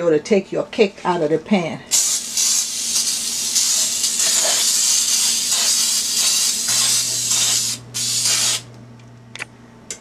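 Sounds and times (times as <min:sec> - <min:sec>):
aerosol spray hissing: 0:01.9 - 0:08.7.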